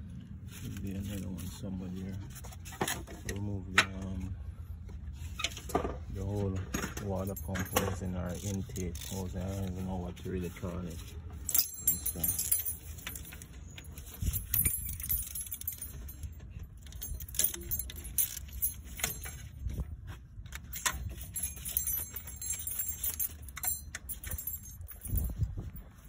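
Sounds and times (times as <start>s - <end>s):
low steady rumble: 0.0s - 26.0s
hand tools clinking on metal: 5.8s - 9.9s, 11.4s - 19.9s, 20.5s - 25.9s.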